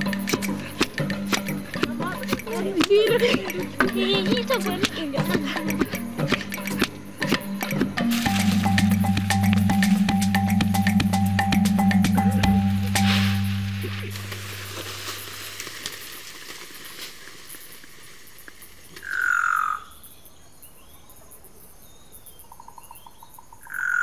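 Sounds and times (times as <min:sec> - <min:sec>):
music: 0:00.0 - 0:15.3.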